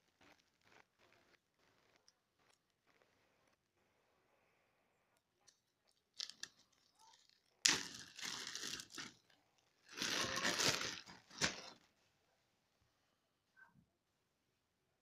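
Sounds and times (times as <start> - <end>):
plastic crinkle: 5.4 - 11.9
plastic bag rustling and tearing: 6.2 - 11.8
plastic bag clicks: 7.6 - 9.2, 9.9 - 11.8.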